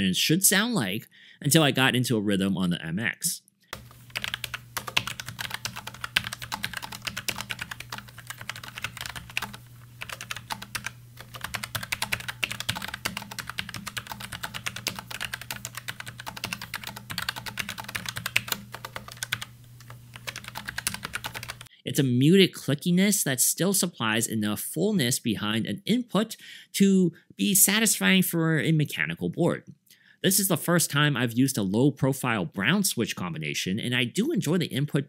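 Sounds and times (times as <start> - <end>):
fast typing on keyboard: 3.8 - 21.7.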